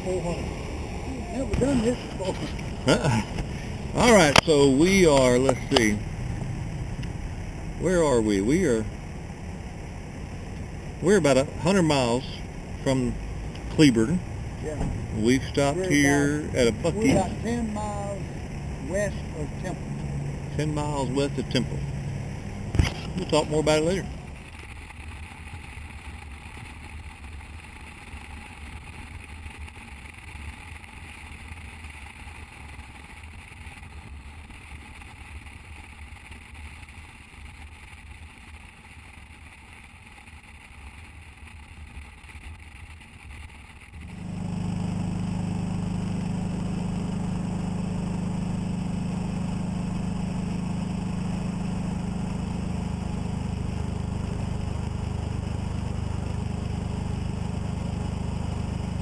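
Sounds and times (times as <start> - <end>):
road and wind noise: 0.0 - 29.2
motorcycle engine drone: 0.0 - 59.0.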